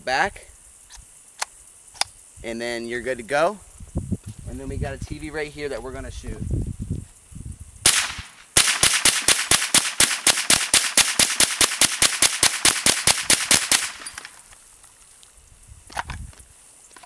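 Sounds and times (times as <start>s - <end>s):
rifle shots: 7.8s - 14.4s.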